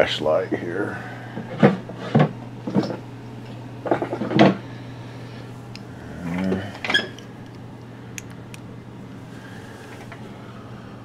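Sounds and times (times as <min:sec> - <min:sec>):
steady low hum: 0:00.0 - 0:11.0
sharp clicks: 0:08.2 - 0:08.7.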